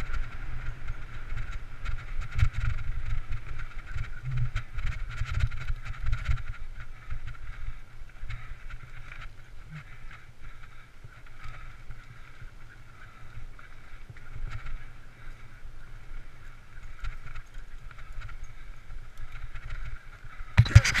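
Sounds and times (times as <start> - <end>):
wind buffeting microphone: 0.0 - 9.4
bike clicks and rattles: 0.0 - 21.0.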